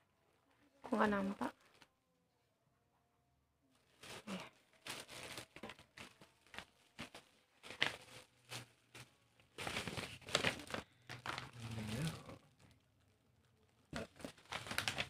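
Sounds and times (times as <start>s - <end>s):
plastic wrapping crinkling: 3.7s - 15.0s.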